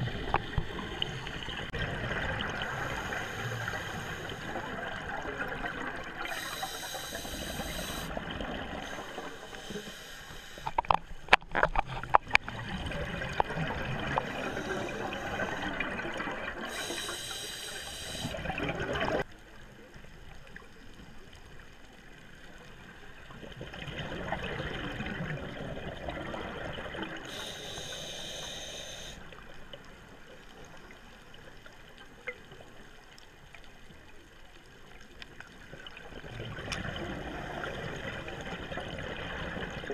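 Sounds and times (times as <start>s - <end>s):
watery wash: 0.0s - 19.3s
scuba regulator breathing: 2.6s - 4.8s, 6.2s - 8.2s, 8.8s - 10.9s, 14.1s - 15.9s, 16.6s - 18.5s, 27.3s - 29.2s
bursts of hiss: 6.2s - 8.1s, 8.8s - 10.8s, 14.2s - 15.8s, 16.7s - 18.4s, 27.3s - 29.2s.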